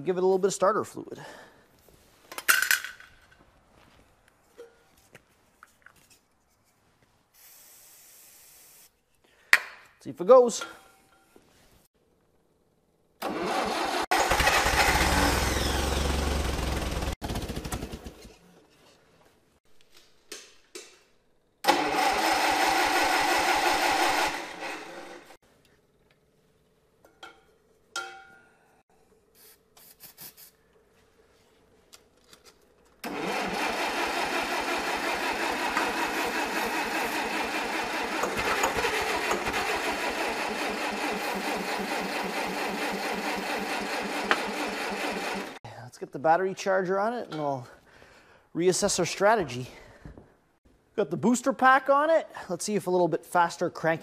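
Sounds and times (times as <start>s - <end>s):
engine cranking and firing: 13.2s - 18.4s, 21.6s - 25.4s, 33.0s - 45.6s.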